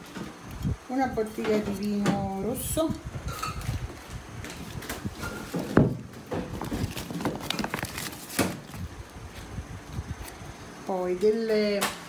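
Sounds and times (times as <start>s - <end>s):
plastic bag rustling: 3.2s - 10.4s
packages knocking: 5.2s - 8.7s.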